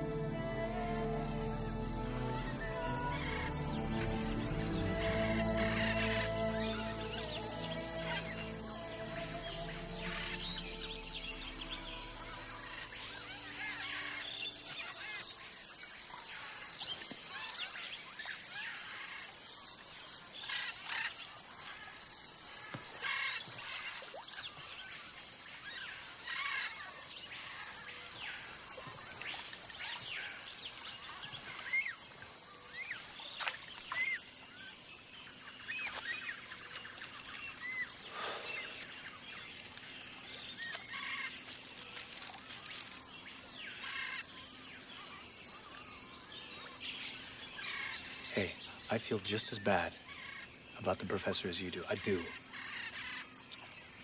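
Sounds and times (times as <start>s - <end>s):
music: 0.0s - 14.9s
birds calling and chirping: 2.5s - 54.0s
background hiss: 5.0s - 54.0s.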